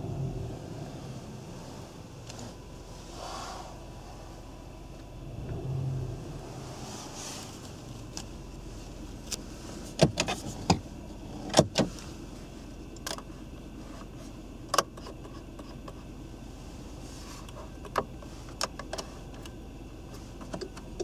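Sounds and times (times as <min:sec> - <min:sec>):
low steady hum: 0:00.0 - 0:21.0
plastic dashboard clicks and knocks: 0:09.3 - 0:11.9, 0:17.7 - 0:19.5, 0:20.4 - 0:21.0.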